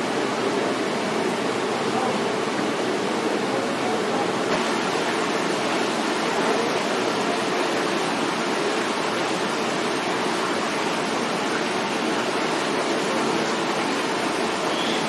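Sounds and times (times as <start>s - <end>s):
water feature running water: 0.0s - 15.0s.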